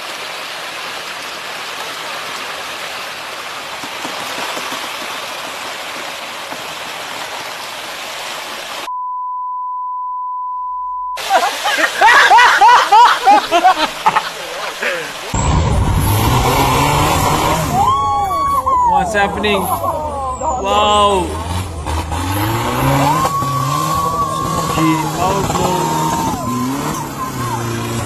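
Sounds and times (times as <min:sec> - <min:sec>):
rushing churning water: 0:00.0 - 0:08.9, 0:11.2 - 0:28.0
censor bleep: 0:08.9 - 0:11.2
people shouting: 0:16.1 - 0:21.6, 0:22.4 - 0:28.0.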